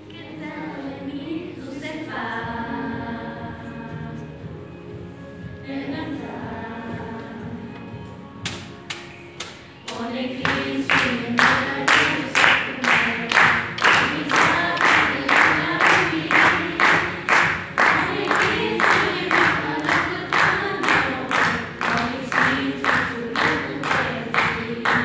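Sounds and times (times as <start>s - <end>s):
young voices singing together: 0.0s - 25.0s
steady hand clapping: 8.4s - 25.0s.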